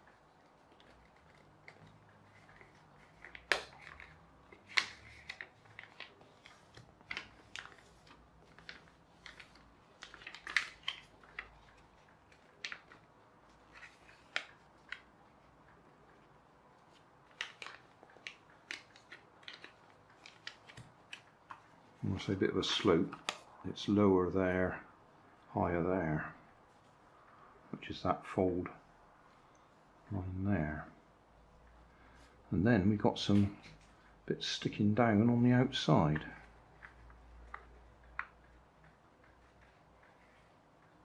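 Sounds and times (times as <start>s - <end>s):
paper being folded and creased: 0.0s - 23.5s, 36.1s - 41.0s.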